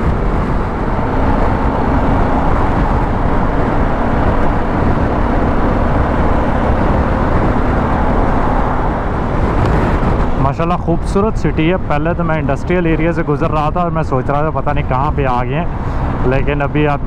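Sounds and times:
motorcycle engine hum: 0:00.0 - 0:17.0
wind and road rush: 0:00.0 - 0:17.0.

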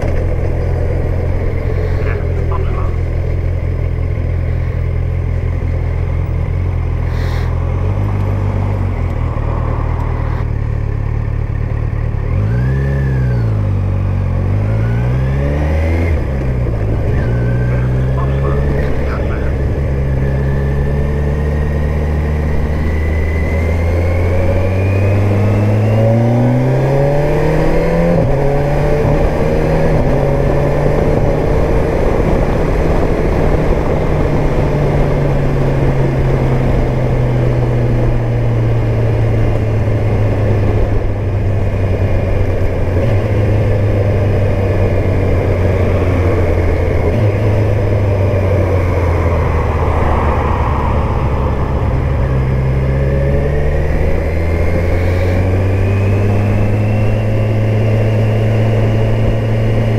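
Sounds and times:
motorcycle engine revving: 0:00.0 - 0:59.9
wind noise: 0:14.7 - 0:59.9.

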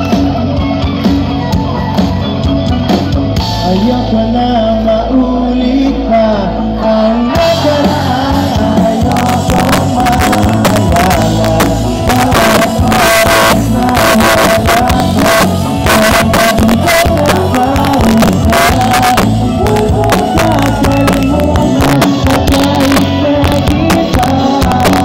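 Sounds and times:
drums: 0:00.0 - 0:25.0
pop-rock band playing: 0:00.0 - 0:25.0.

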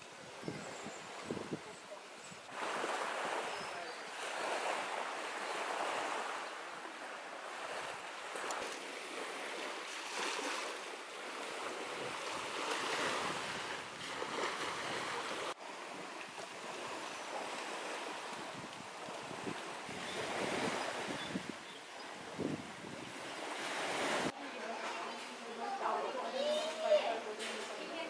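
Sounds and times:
wind buffeting microphone: 0:00.0 - 0:03.4, 0:07.6 - 0:24.3
small waves washing onto sand: 0:00.0 - 0:28.0.

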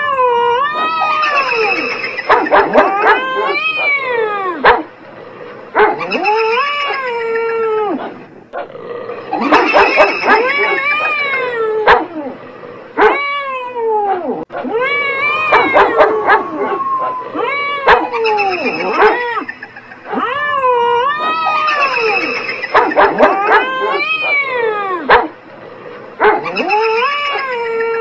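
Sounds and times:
cats yowling: 0:00.0 - 0:04.8, 0:05.8 - 0:08.2, 0:09.1 - 0:12.4, 0:13.0 - 0:25.3, 0:26.2 - 0:28.0
dog barks: 0:02.2 - 0:04.9, 0:05.8 - 0:06.2, 0:09.4 - 0:11.2, 0:11.8 - 0:12.1, 0:13.0 - 0:13.2, 0:15.5 - 0:16.6, 0:17.8 - 0:18.2, 0:18.8 - 0:19.3, 0:22.7 - 0:24.5, 0:25.1 - 0:25.4, 0:26.2 - 0:26.8.

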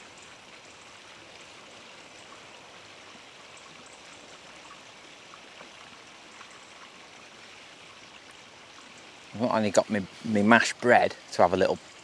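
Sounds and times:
riverbank ambience hiss: 0:00.0 - 0:12.0
faint ticks: 0:08.2 - 0:09.0.

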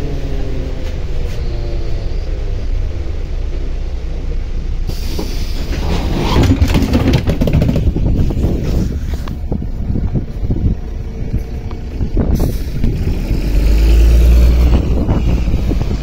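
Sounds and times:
bus engine rumbling: 0:00.0 - 0:16.0
bus doors hissing open: 0:04.8 - 0:06.4, 0:12.3 - 0:12.9
wind buffeting microphone: 0:05.2 - 0:16.0.

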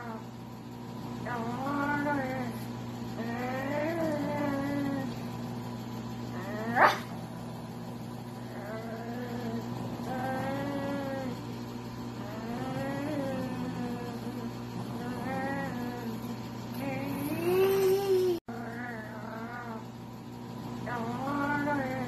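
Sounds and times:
dog whining howls: 0:12.2 - 0:19.9.

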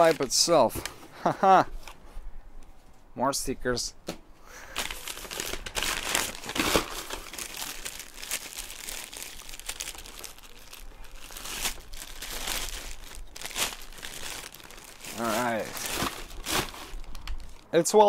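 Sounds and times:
packing paper rustling: 0:00.0 - 0:00.9, 0:04.6 - 0:17.7
plastic bag crinkling: 0:04.7 - 0:17.7.

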